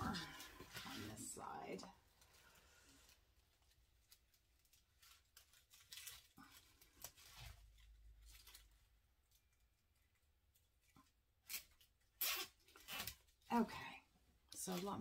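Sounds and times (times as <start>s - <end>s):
zip tie clicks and rustles: 11.4s - 13.5s.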